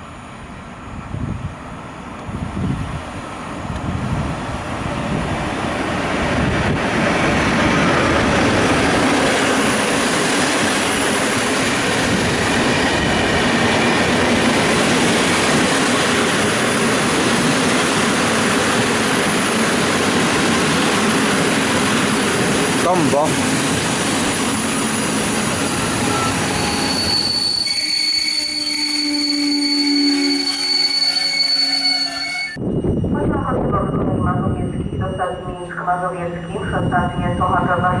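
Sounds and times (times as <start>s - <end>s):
train wheels rushing on rails: 0.0s - 27.8s.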